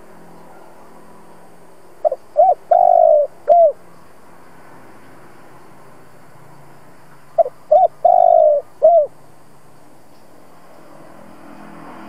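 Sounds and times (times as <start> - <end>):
faint background hum: 0.0 - 12.0
dove cooing: 2.0 - 3.8, 7.4 - 9.2.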